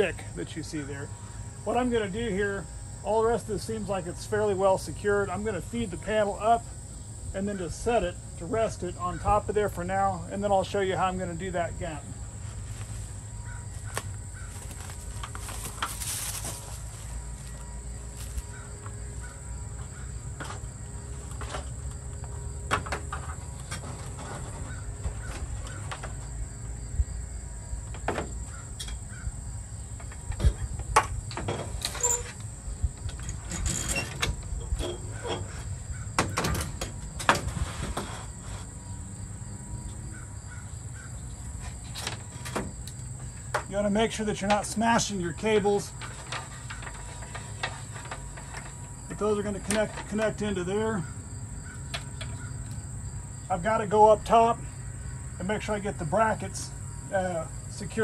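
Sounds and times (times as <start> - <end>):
metal frame knocking and scraping: 22.6 - 26.3, 33.0 - 38.7, 41.6 - 51.1.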